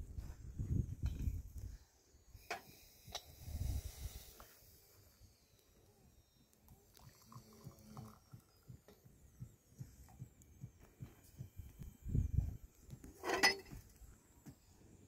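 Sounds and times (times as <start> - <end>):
tea pouring into a glass: 6.8 - 8.6
soft low thumps: 7.6 - 14.6
metal tray and glasses clattering: 13.2 - 13.7.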